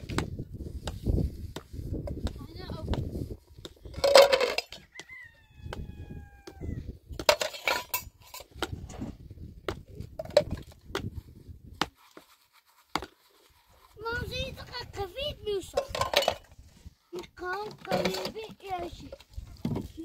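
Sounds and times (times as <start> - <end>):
rooster crowing: 4.7 - 6.8.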